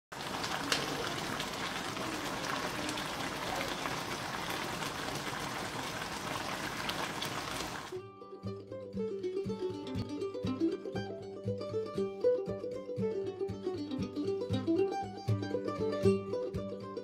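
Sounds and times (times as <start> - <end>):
sauce bubbling and sizzling: 0.1 - 8.0
plucked-string music: 7.9 - 17.0.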